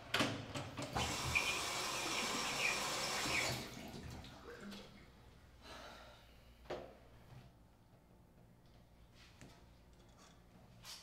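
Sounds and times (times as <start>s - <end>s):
tap water running into basin: 1.0s - 5.0s.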